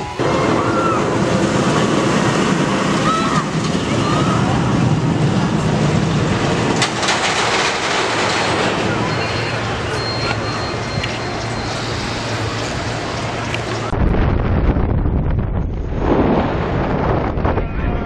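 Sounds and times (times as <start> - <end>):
roller coaster rumbling on rails: 0.0 - 18.0.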